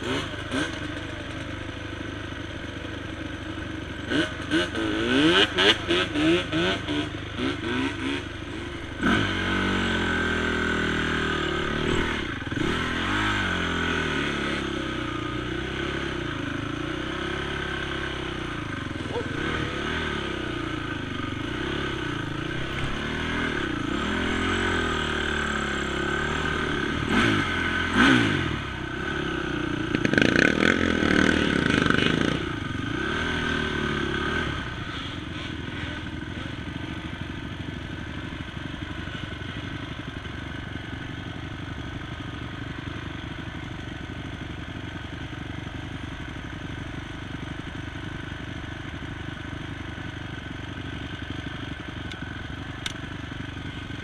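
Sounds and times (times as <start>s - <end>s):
quad bike engine revving: 0.0s - 54.0s.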